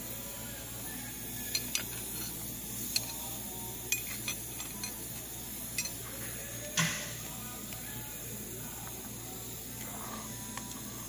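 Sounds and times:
low shop hum: 0.0s - 11.0s
light metallic clinks: 1.5s - 3.2s, 5.7s - 6.0s.

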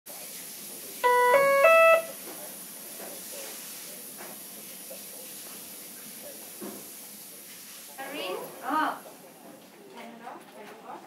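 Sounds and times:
rising electronic tones: 1.0s - 2.1s.

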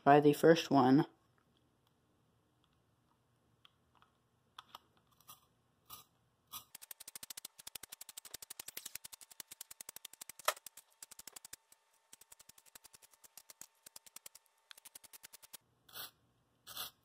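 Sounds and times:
pencil sharpener clicking: 6.6s - 15.6s.

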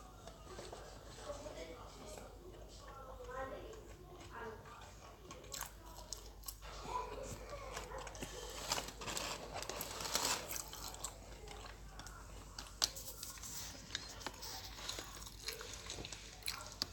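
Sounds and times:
person chewing crunchy food: 7.8s - 16.9s.

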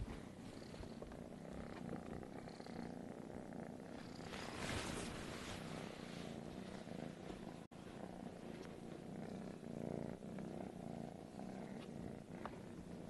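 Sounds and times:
kitten purring: 0.0s - 13.0s.

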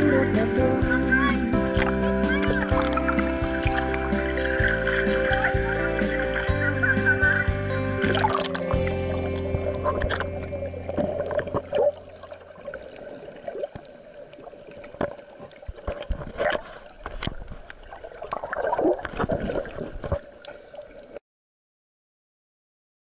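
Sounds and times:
underwater air bubbles gurgling: 1.6s - 21.2s
underwater clicks and knocks: 8.1s - 12.0s, 15.0s - 17.8s.

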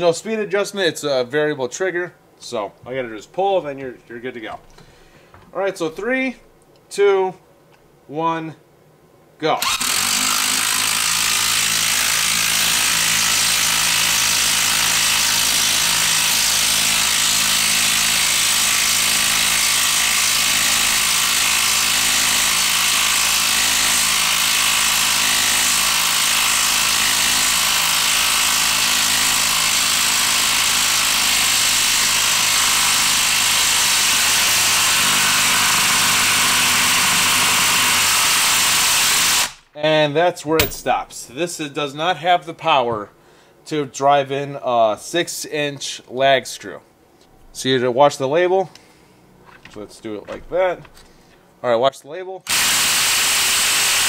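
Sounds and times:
impact driver hammering: 40.6s - 41.1s.

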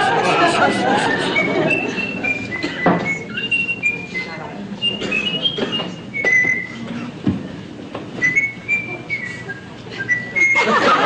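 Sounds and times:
person whistling a tune: 1.0s - 6.9s, 8.2s - 10.7s.

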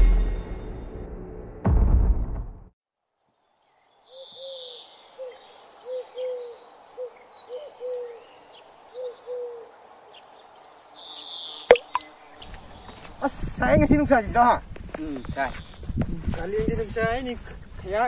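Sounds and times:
birds chirping: 3.3s - 18.0s
bird cooing: 4.1s - 10.2s.

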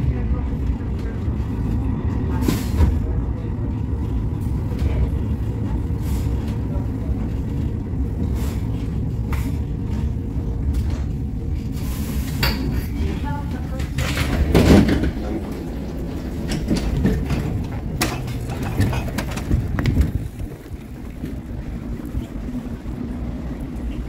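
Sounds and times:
light-rail wheels and motors rumble: 0.0s - 24.0s.

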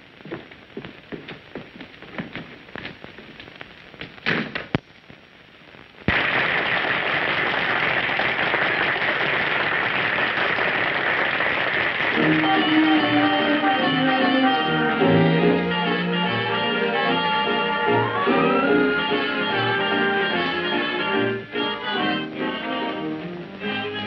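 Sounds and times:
crowd applause: 6.1s - 13.6s, 16.3s - 20.6s
dance orchestra with brass: 12.0s - 24.0s.

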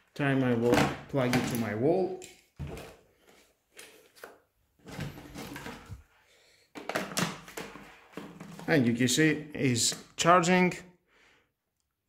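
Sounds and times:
plastic knocks and scrapes: 2.6s - 6.0s, 6.7s - 8.8s.

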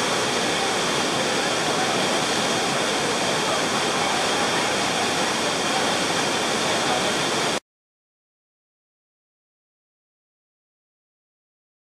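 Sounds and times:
waterfall rushing: 0.0s - 7.6s.

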